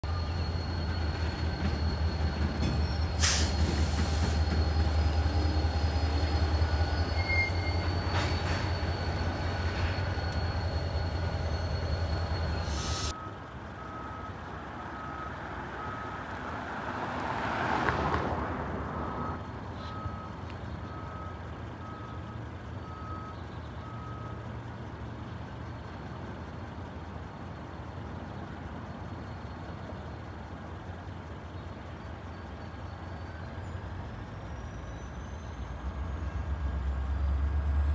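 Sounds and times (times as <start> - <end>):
diesel locomotive engine rumbling: 0.0 - 37.9
car passing close by: 16.7 - 19.1.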